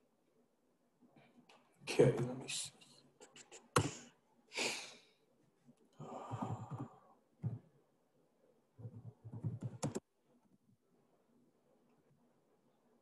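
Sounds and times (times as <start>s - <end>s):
person breathing and sighing: 3.8s - 5.2s, 6.0s - 7.2s.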